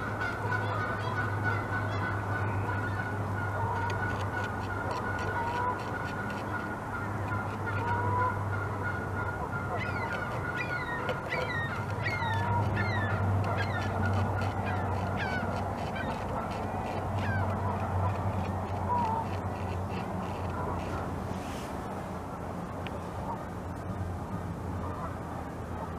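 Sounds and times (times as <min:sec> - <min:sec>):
geese honking: 0:00.0 - 0:21.2, 0:24.8 - 0:25.2
beaver gnawing wood: 0:03.7 - 0:08.0, 0:09.8 - 0:21.2.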